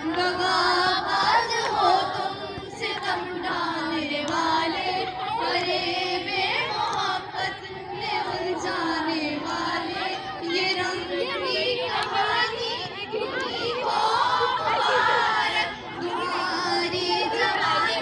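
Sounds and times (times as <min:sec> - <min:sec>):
girls singing and calling out: 0:00.0 - 0:18.0.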